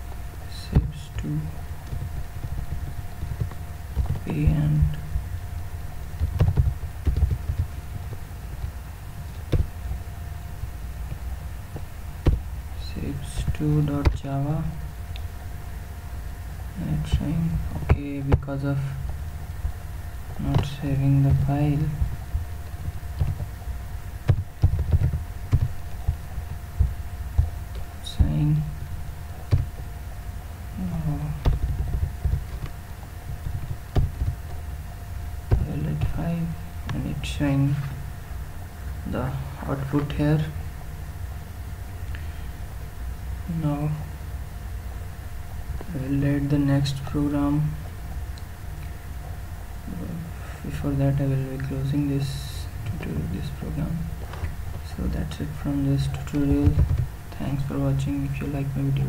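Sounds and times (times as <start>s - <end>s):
low hum: 0.0s - 59.0s
keyboard and mouse clicks: 6.2s - 7.7s, 24.3s - 25.8s.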